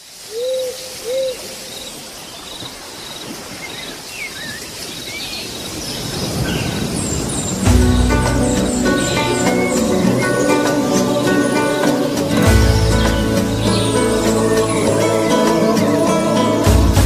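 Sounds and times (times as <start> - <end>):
steady hiss: 0.0 - 4.9
low bird hoots: 0.3 - 2.0, 7.8 - 16.5.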